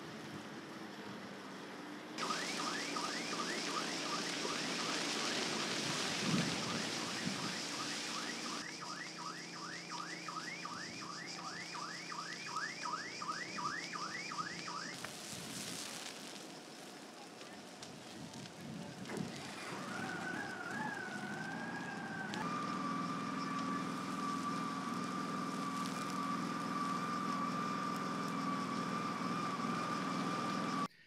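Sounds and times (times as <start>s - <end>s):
electronic alarm siren yelping: 2.2s - 15.1s, 19.4s - 30.9s
steady rushing noise: 2.2s - 27.6s.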